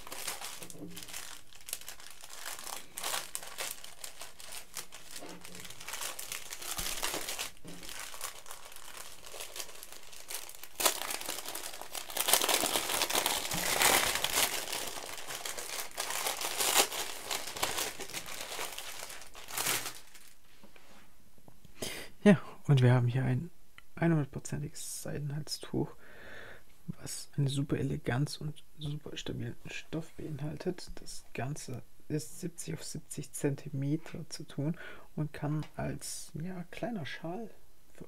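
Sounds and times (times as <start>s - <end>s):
plastic bag crinkling: 0.0s - 20.5s.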